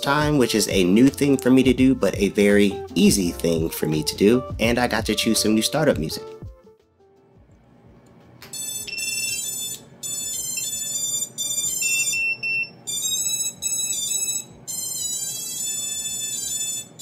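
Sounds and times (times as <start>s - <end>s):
motors beeping startup melody: 8.5s - 17.0s.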